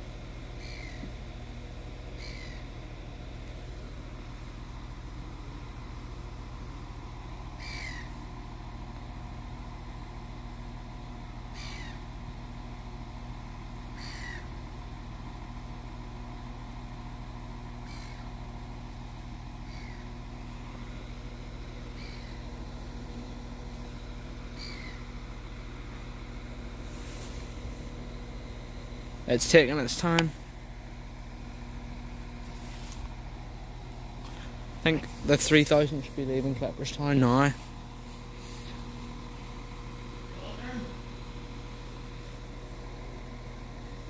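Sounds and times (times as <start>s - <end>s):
diesel train idling hum: 0.0s - 44.0s
falling bird calls: 0.5s - 1.3s, 2.0s - 3.0s, 7.5s - 8.4s, 11.4s - 12.2s, 13.8s - 14.6s, 17.7s - 18.5s, 19.5s - 29.1s.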